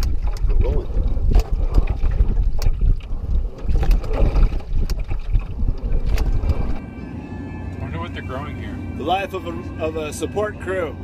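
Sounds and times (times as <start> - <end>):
water splashing: 0.0 - 6.8
wind buffeting microphone: 0.0 - 10.5.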